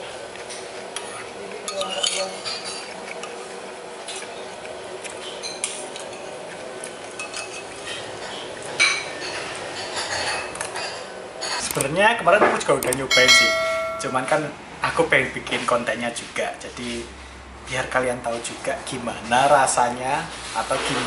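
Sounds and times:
metal spoon clinking on bowl: 0:12.8 - 0:14.4.

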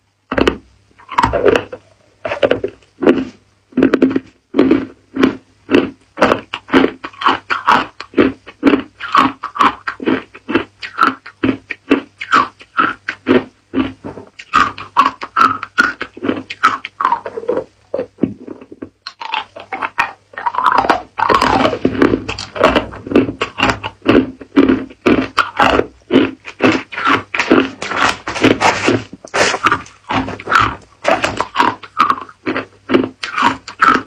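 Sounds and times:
ice cubes crunched by teeth: 0:19.1 - 0:34.0.

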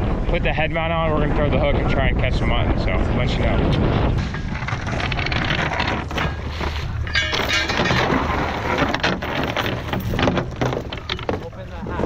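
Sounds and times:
wind: 0:00.0 - 0:12.0
anchor chain rattling: 0:04.1 - 0:12.0.

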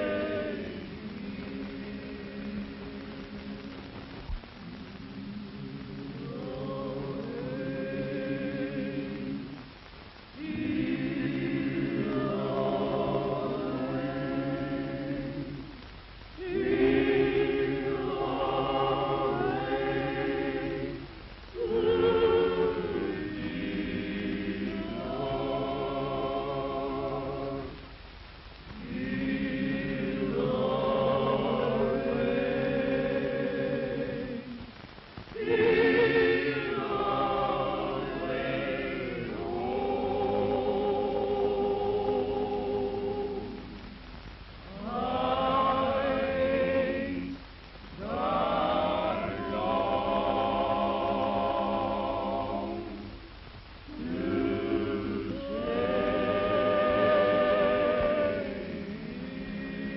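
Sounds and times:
choir singing in harmony: 0:00.0 - 0:04.0, 0:04.6 - 0:09.8, 0:10.4 - 0:15.8, 0:16.4 - 0:27.9, 0:28.7 - 0:34.7, 0:35.4 - 0:44.1, 0:44.7 - 0:59.9.

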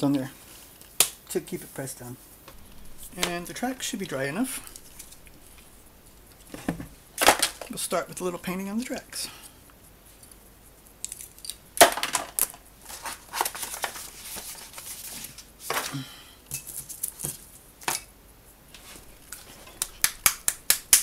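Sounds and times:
hands handling small items: 0:02.5 - 0:08.3, 0:10.1 - 0:18.0.

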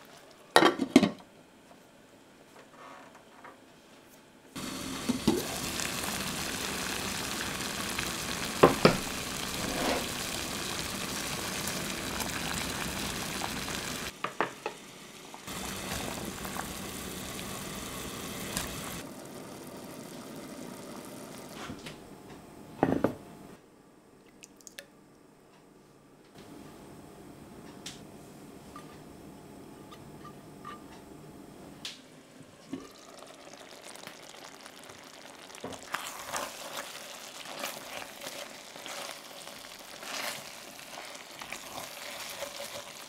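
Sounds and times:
food sizzling and bubbling: 0:04.6 - 0:21.8, 0:32.5 - 0:43.0.

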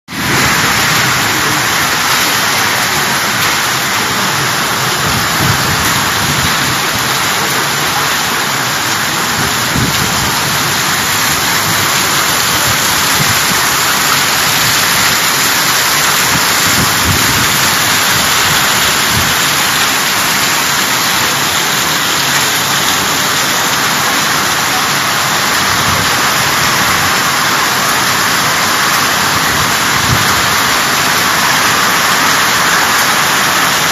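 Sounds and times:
wind gusts: 0:00.1 - 0:07.8, 0:09.0 - 0:19.9, 0:29.3 - 0:30.7
heavy rain hissing: 0:00.1 - 0:33.9.

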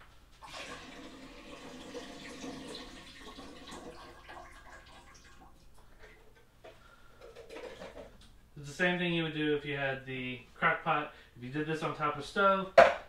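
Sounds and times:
tap running water into sink: 0:00.4 - 0:05.5.

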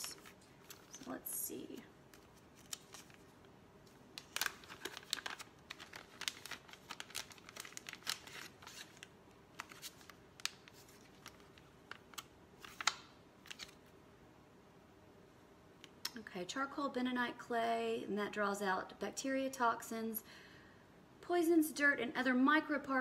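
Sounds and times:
paper packaging crinkling: 0:00.0 - 0:13.9.

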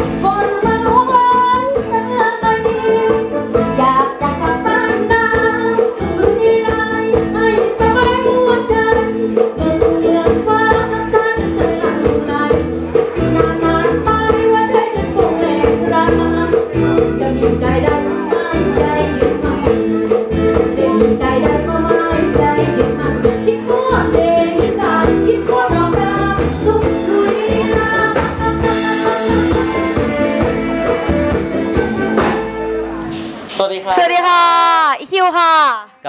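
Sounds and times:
woman singing into microphone: 0:00.0 - 0:30.6
amplified backing music: 0:00.0 - 0:35.4.

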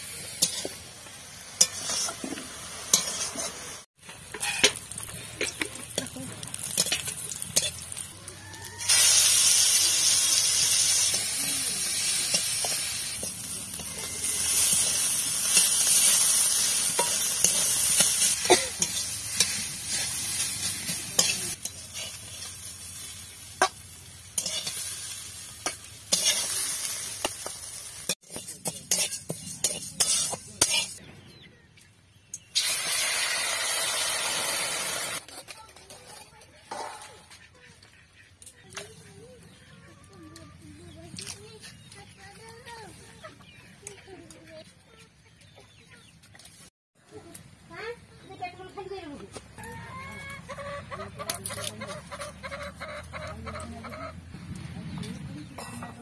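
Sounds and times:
vegetables sizzling in hot oil: 0:00.0 - 0:31.0, 0:32.6 - 0:35.2
metal spatula scraping a wok: 0:00.1 - 0:08.1, 0:08.9 - 0:31.0.

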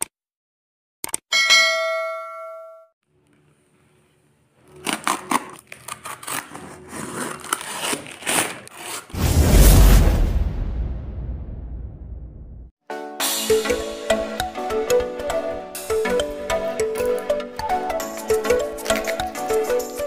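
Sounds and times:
bell-like ding: 0:01.3 - 0:03.0
packing tape slit with blade: 0:04.7 - 0:09.2, 0:18.8 - 0:19.3
whoosh with deep rumble: 0:09.2 - 0:12.7.

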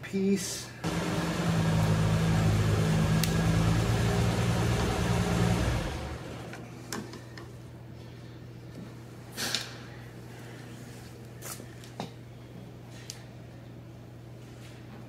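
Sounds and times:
machine humming: 0:00.8 - 0:06.7.

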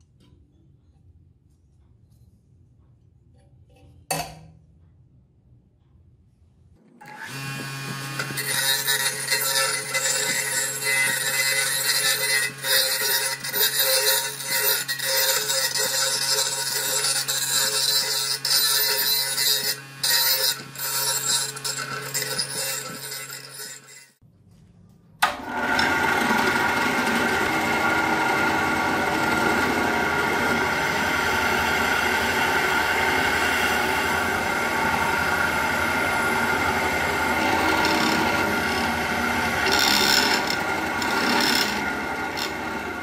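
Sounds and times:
bench grinder motor hum: 0:07.0 - 0:24.2, 0:25.2 - 0:43.0
drill bit grinding into brass: 0:08.0 - 0:24.2, 0:25.8 - 0:43.0.

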